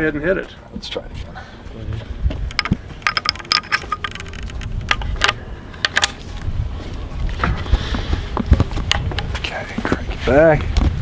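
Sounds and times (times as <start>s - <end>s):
metallic clicks of rifle action: 2.5s - 6.2s.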